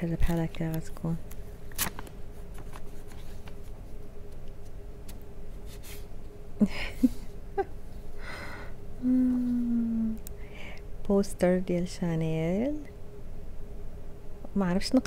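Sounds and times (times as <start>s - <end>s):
paper handling: 0.2s - 3.8s
soft vocal sounds: 8.3s - 10.8s
person humming: 9.0s - 10.3s.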